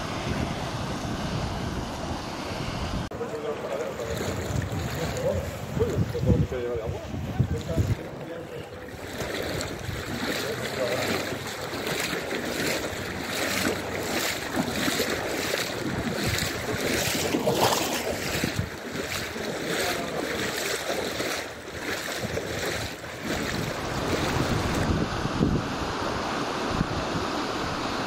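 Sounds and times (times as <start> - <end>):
wind buffeting microphone: 0.0 - 27.8
floodwater sloshing and splashing: 3.1 - 24.9.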